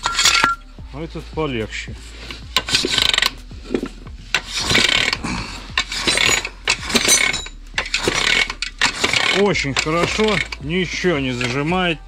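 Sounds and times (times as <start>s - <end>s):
metal rubbing and scraping: 0.0s - 12.0s
sharp metal clicks: 5.8s - 10.6s.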